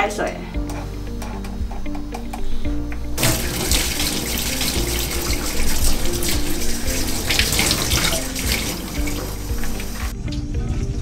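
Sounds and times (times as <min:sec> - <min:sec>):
water splashing over hands: 0:03.2 - 0:10.1
tap water running into steel sink: 0:03.2 - 0:10.4.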